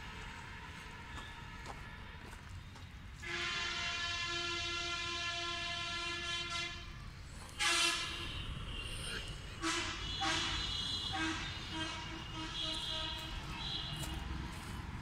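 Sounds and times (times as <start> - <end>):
horn blasts: 0.0 - 2.5, 3.2 - 14.3.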